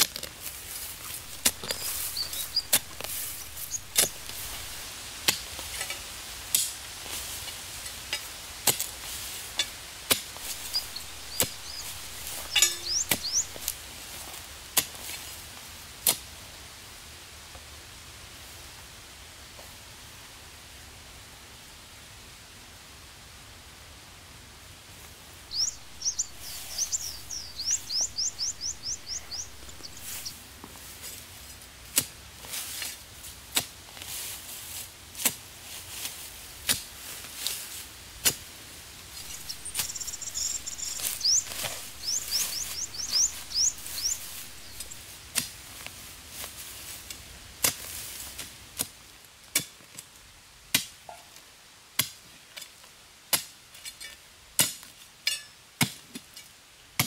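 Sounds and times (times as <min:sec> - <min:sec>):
bird trilling: 0:01.2 - 0:04.8, 0:10.4 - 0:13.7, 0:25.5 - 0:30.3, 0:39.2 - 0:45.0.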